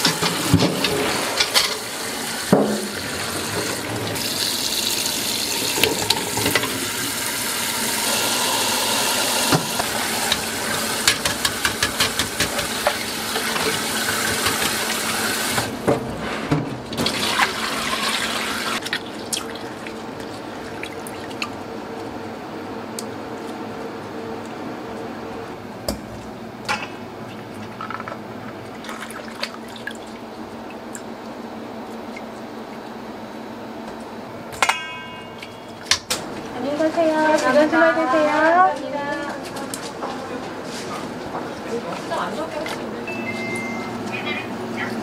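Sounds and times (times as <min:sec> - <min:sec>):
tap water running into pot: 0:00.0 - 0:15.7.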